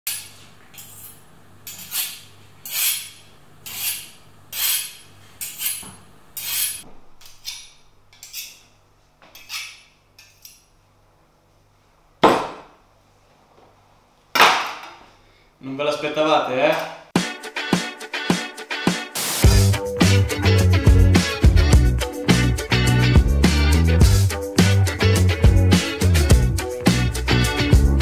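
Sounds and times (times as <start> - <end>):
knife scraping on honing steel: 0.1 - 8.7, 9.3 - 10.7.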